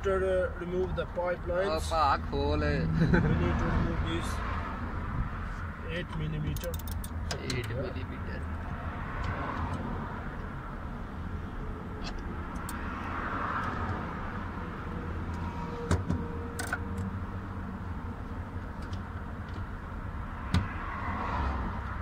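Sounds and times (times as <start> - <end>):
ratchet clicking: 6.5 - 7.2.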